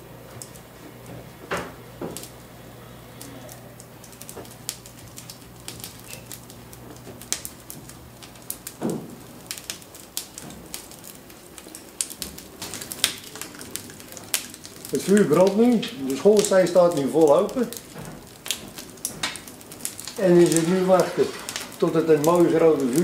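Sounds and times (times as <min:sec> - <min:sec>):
coal lumps clunking: 0:00.0 - 0:23.0
fire crackling and popping: 0:00.0 - 0:23.0
low steady hum: 0:00.0 - 0:23.0.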